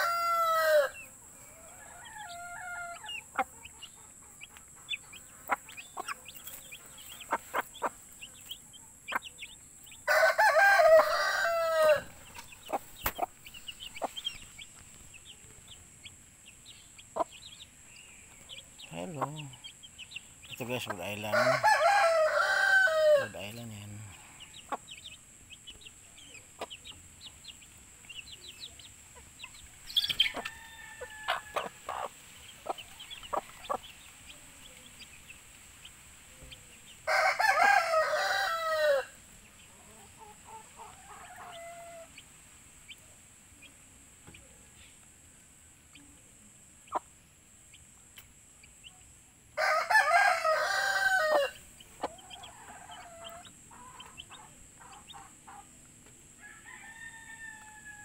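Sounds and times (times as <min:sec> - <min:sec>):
rooster crowing: 0:00.0 - 0:03.3, 0:10.0 - 0:12.2, 0:21.2 - 0:24.3, 0:30.2 - 0:32.1, 0:37.0 - 0:39.2, 0:49.6 - 0:53.5, 0:56.4 - 0:58.0
chicks peeping: 0:00.0 - 0:57.9
hen clucking: 0:01.9 - 0:09.6, 0:10.6 - 0:16.2, 0:16.9 - 0:17.5, 0:18.4 - 0:25.1, 0:28.7 - 0:34.1, 0:50.1 - 0:55.8.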